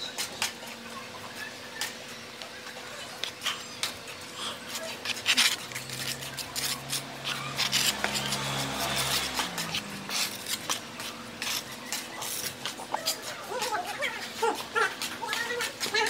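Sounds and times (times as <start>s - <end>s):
trowel scraping mortar: 4.7s - 13.4s.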